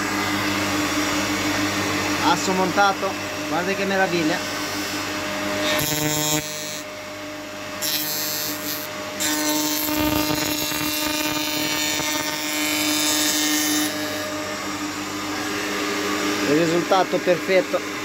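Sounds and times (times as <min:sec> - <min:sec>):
woodworking machine humming: 0:00.0 - 0:18.0
cutter cutting wood board: 0:03.9 - 0:07.0, 0:07.7 - 0:15.8.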